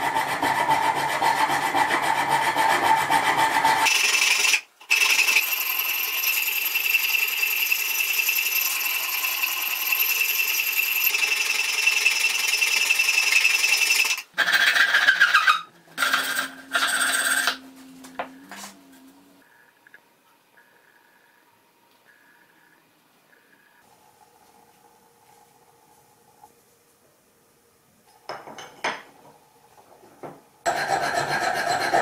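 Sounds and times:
hand file rasping on metal: 0:30.7 - 0:32.0.

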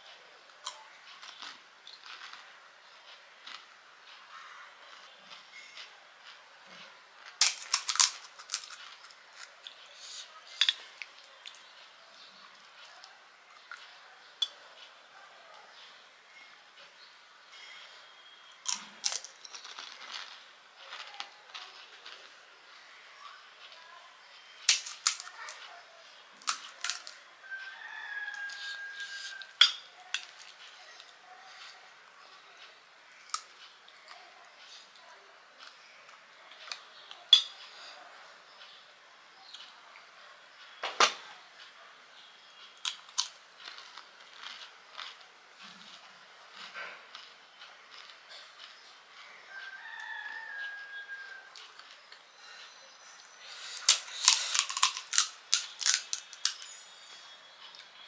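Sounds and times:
crisp shells cracking and crunching: 0:00.6 - 0:02.5, 0:07.2 - 0:11.7, 0:18.6 - 0:22.3, 0:24.6 - 0:25.7, 0:26.4 - 0:27.2, 0:42.8 - 0:49.4, 0:53.4 - 0:56.8
rooster crowing: 0:27.4 - 0:29.6, 0:49.5 - 0:51.7.

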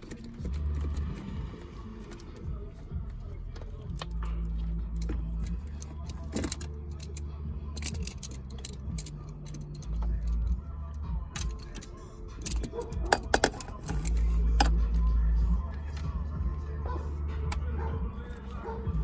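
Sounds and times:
metallic tool clicks and clatter: 0:03.7 - 0:10.6, 0:11.3 - 0:14.8.

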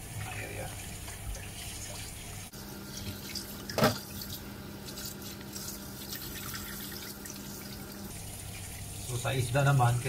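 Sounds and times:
tap running into metal sink: 0:03.7 - 0:04.0.

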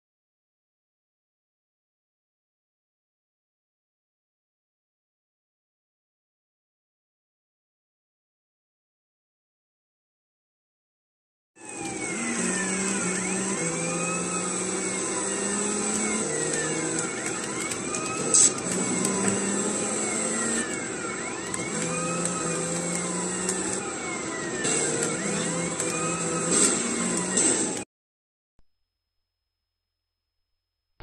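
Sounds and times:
car engine running: 0:11.6 - 0:27.8
police sirens wailing: 0:11.6 - 0:27.8.

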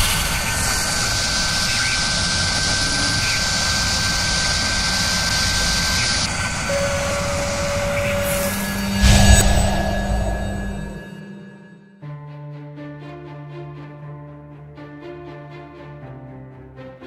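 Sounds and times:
drilling spindle roar and whine: 0:00.0 - 0:11.8.

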